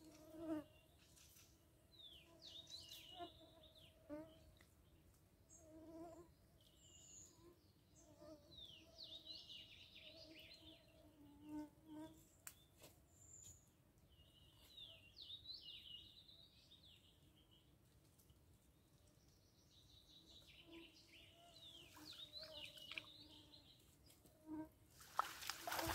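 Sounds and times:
insect buzzing: 0:24.5 - 0:25.9.

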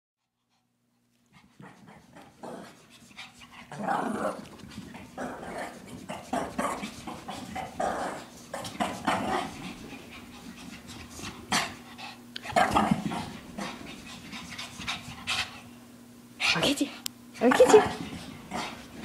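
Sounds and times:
dog panting: 0:00.3 - 0:03.8, 0:04.4 - 0:15.8.

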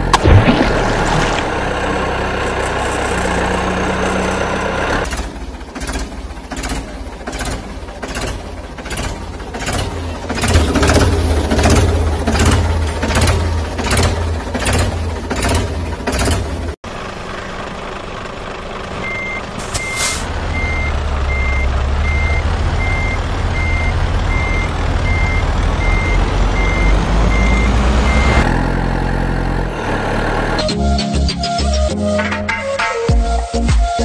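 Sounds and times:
truck engine running: 0:00.0 - 0:30.7
heavy engine chugging: 0:01.5 - 0:19.9
reversing alarm beeping: 0:19.0 - 0:28.5.

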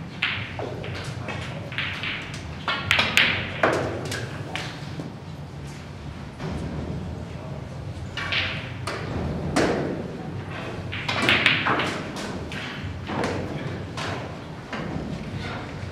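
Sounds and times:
snooker balls clacking: 0:00.0 - 0:05.0, 0:08.2 - 0:15.9
cue striking ball: 0:10.9 - 0:13.5.

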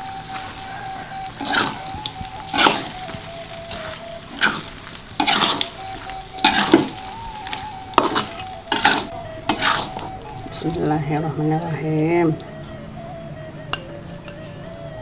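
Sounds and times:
food sizzling in a pan: 0:00.0 - 0:10.1
spatula scraping a pan: 0:00.0 - 0:10.2.

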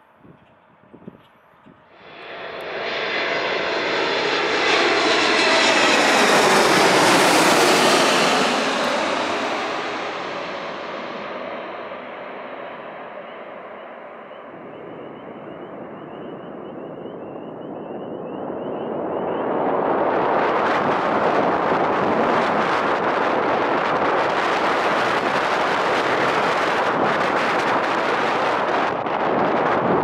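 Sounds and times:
jet airliner engine rush: 0:01.8 - 0:30.0
faint high whine: 0:13.0 - 0:19.6.

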